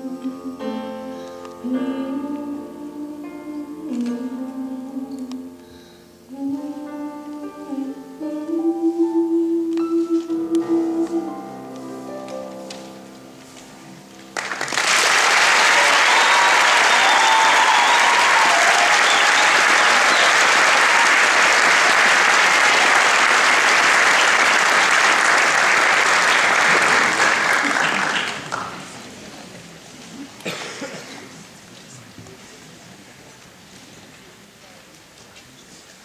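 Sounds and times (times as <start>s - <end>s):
audience applauding: 14.3s - 29.2s
audience cheering: 14.5s - 28.6s.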